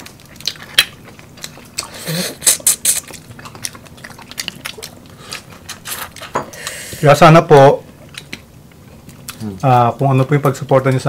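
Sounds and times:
chewing: 0.0s - 6.9s, 7.9s - 10.6s.

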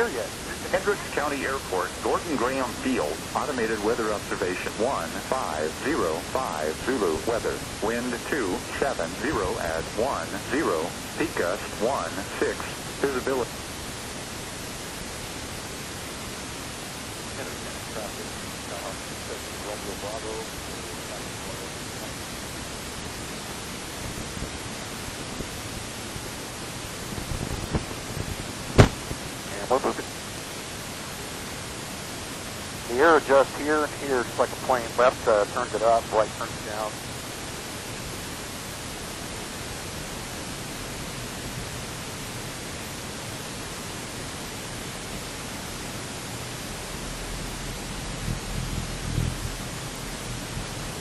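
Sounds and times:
aircraft engine and propeller idling: 0.0s - 15.2s
airplane engine idling in cabin: 0.0s - 51.0s.

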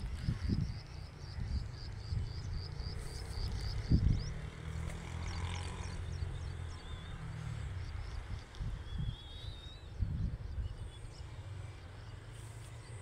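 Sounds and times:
wind on microphone: 0.0s - 4.5s, 7.9s - 11.2s
bird chirping: 0.4s - 12.2s.

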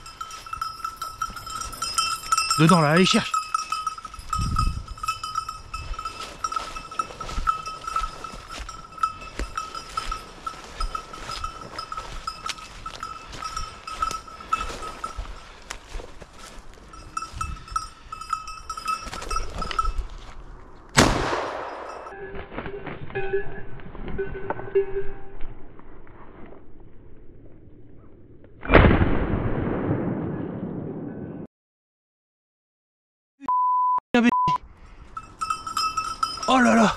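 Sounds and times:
dog collar bell jingling: 0.0s - 20.3s, 21.7s - 22.2s, 35.0s - 36.9s.

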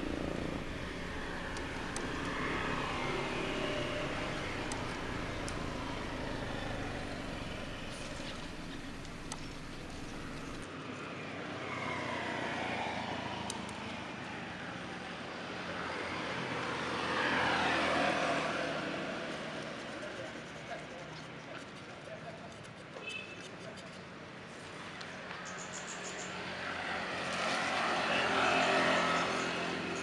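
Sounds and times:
motor vehicle passing: 0.0s - 10.7s, 26.5s - 30.0s
outdoor background noise: 0.0s - 30.0s.

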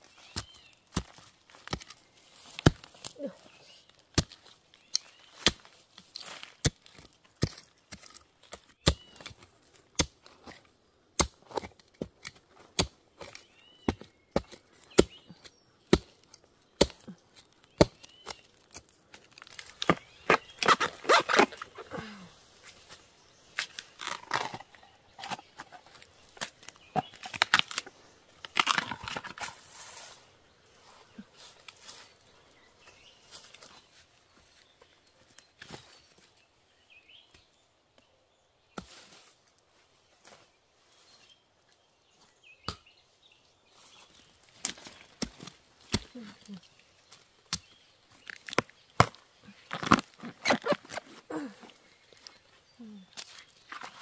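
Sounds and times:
bamboo crackling and tearing: 0.0s - 30.1s, 44.1s - 54.0s
hand tool chopping into soil: 0.3s - 3.2s, 4.1s - 9.4s, 10.0s - 10.6s, 11.2s - 22.2s, 44.6s - 46.5s, 47.5s - 51.5s.

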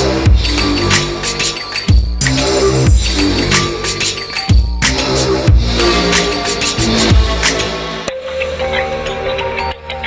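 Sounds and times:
sustained bass notes: 0.0s - 7.8s.

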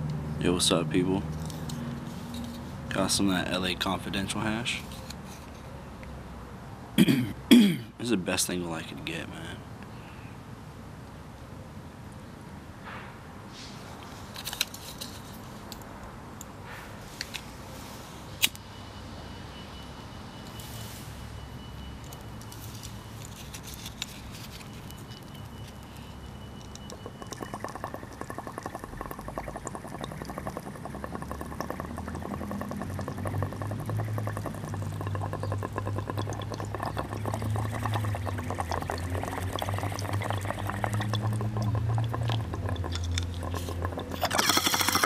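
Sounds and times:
water bubbling in a bong: 26.5s - 45.0s.

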